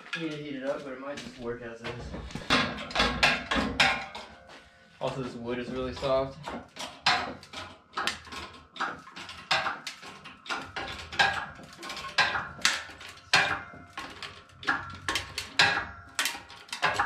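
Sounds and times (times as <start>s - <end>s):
hydraulic press metallic clanks: 1.2s - 17.0s.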